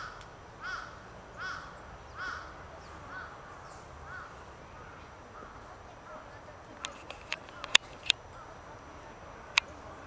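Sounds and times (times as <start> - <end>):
crow cawing: 0.0 - 5.7.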